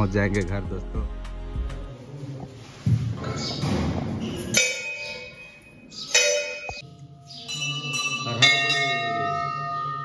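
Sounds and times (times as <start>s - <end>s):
temple bell ringing: 4.4s - 10.0s.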